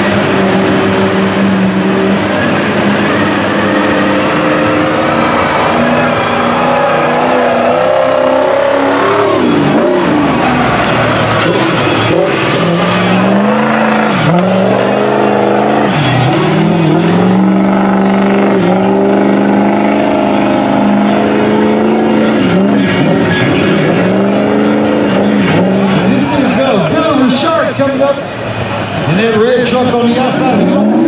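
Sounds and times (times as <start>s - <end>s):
diesel engine revving hard: 0.0s - 31.0s.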